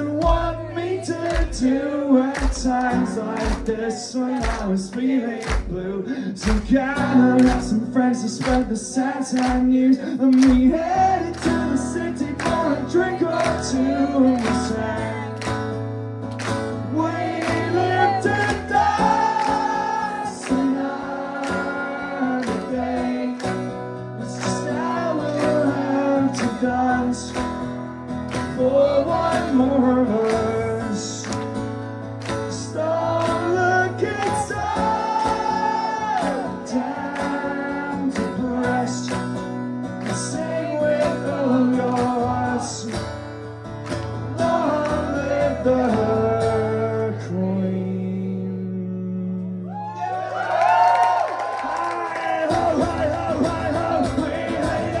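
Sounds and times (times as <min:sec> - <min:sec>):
audience singing along: 0:00.0 - 0:07.7, 0:16.8 - 0:27.2, 0:32.4 - 0:39.2, 0:40.0 - 0:42.8, 0:44.2 - 0:46.6, 0:52.2 - 0:55.0
man singing: 0:00.0 - 0:15.4, 0:16.8 - 0:23.6, 0:24.2 - 0:27.6, 0:28.3 - 0:31.6, 0:32.4 - 0:39.4, 0:40.0 - 0:43.1, 0:44.3 - 0:49.8, 0:51.9 - 0:55.0
acoustic guitar strumming: 0:00.0 - 0:49.6, 0:52.3 - 0:55.0.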